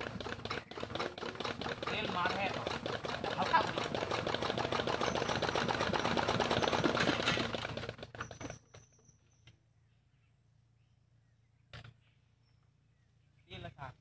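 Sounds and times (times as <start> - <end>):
diesel engine clattering: 0.0 - 8.9.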